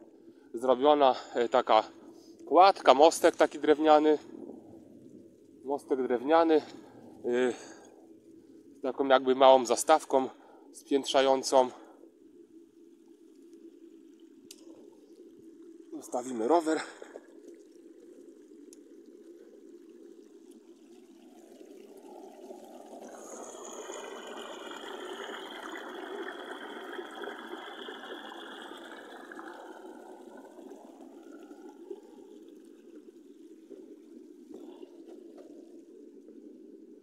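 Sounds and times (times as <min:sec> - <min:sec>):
water pouring over a weir: 0:12.9 - 0:37.0.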